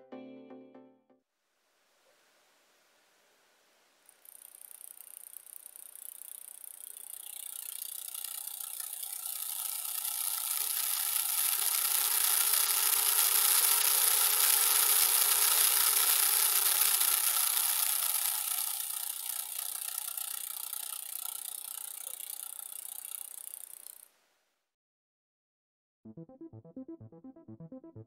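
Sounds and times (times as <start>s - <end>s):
small motor and gears whirring: 4.0s - 24.2s.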